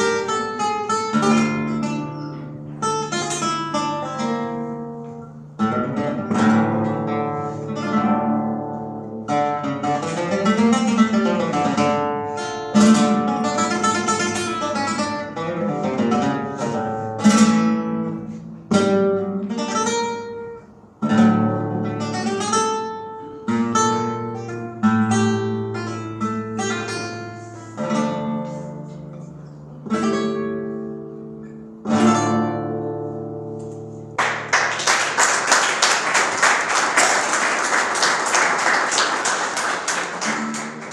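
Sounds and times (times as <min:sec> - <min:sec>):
flamenco guitar chords and runs: 0:00.0 - 0:40.9
applause: 0:34.2 - 0:40.9.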